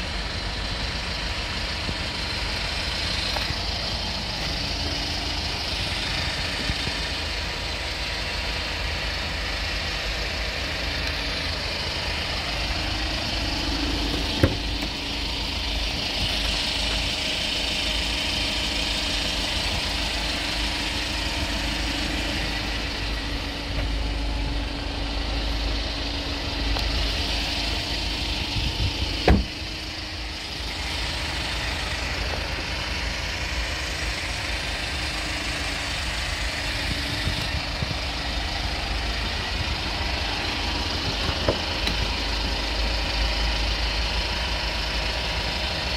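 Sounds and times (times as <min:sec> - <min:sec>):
truck engine idling: 0:00.0 - 0:45.9
sharp knocks: 0:14.2 - 0:14.9.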